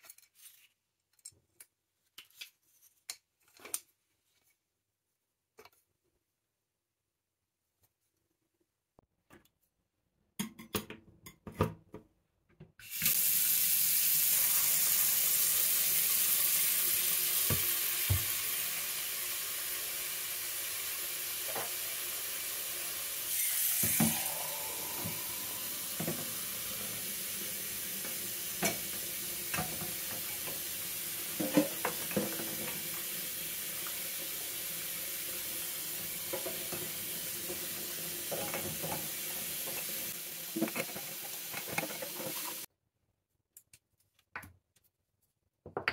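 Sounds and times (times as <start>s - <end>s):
tap water running into sink: 12.9s - 42.7s.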